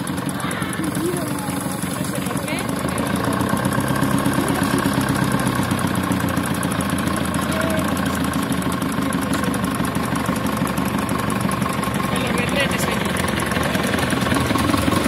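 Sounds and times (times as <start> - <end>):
railcar diesel engine running: 0.0 - 15.0.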